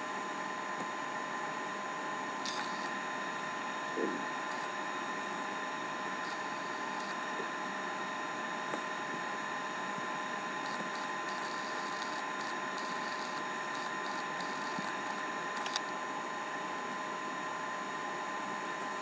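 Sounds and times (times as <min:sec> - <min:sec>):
appliance hum and hiss: 0:00.0 - 0:19.0
whining tones: 0:02.4 - 0:09.8, 0:10.5 - 0:15.8.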